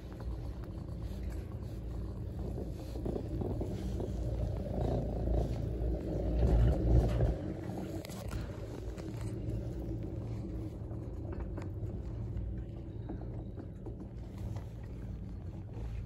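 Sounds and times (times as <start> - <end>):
chairlift rope rumbling over wheels: 0.0 - 16.0.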